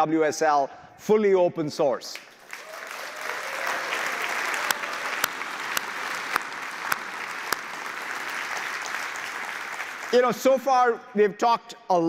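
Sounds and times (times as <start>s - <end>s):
audience applauding: 2.3s - 10.6s.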